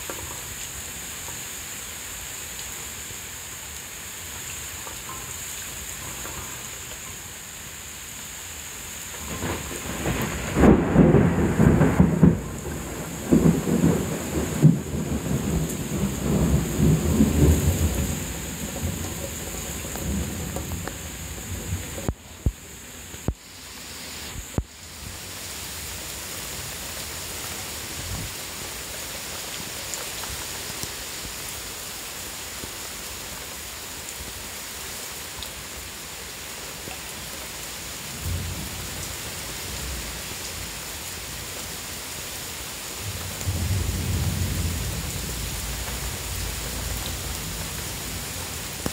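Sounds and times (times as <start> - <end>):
heavy rain: 0.0 - 48.9
rolling thunder: 9.2 - 22.6, 43.0 - 48.0.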